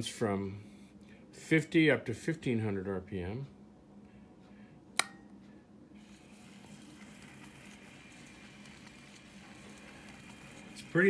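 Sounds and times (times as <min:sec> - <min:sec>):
sharp click: 0:05.0 - 0:05.3.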